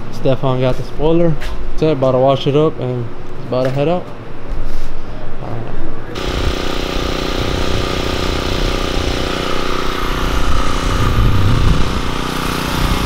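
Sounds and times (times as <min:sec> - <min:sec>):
pressure washer engine droning: 0:06.1 - 0:13.0
water spray hissing: 0:06.2 - 0:13.0.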